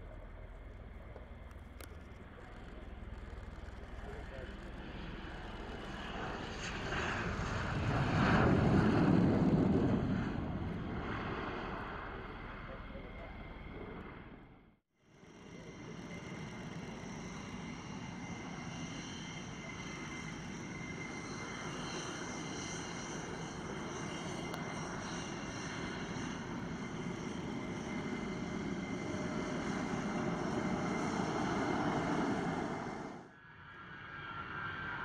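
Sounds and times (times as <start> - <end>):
jet engine whine: 0.0 - 35.0.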